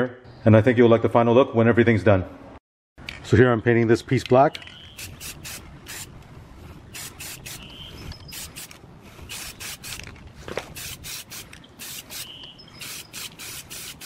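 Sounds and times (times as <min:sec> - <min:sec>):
spray paint can hissing: 0:04.9 - 0:06.1, 0:06.9 - 0:07.7, 0:08.3 - 0:10.1, 0:10.7 - 0:14.0.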